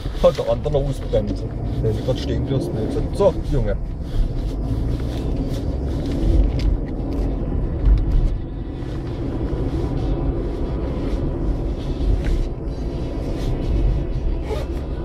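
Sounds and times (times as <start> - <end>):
engine and tyre rumble: 0.0 - 15.0.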